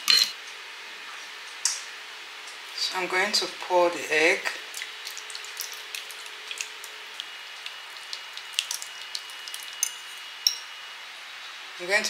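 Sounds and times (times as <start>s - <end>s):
egg sizzling in a skillet: 4.6s - 10.8s.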